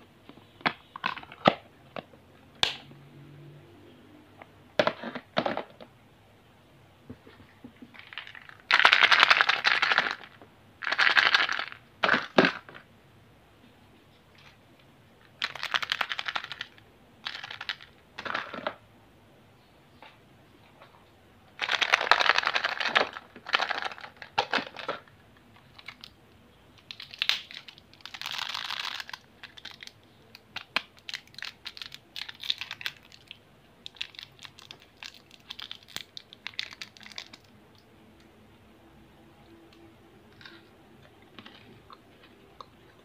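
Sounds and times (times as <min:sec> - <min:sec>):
plastic wrapper crinkling: 0:08.0 - 0:12.5, 0:15.4 - 0:18.0, 0:21.6 - 0:26.1, 0:26.8 - 0:37.8.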